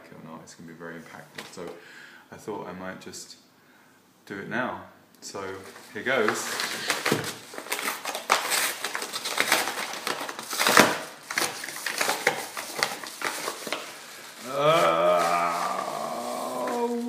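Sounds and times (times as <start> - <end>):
man talking: 0.0 - 3.4, 4.3 - 6.8, 14.4 - 17.0
paper envelope crinkling and tearing: 5.6 - 17.0.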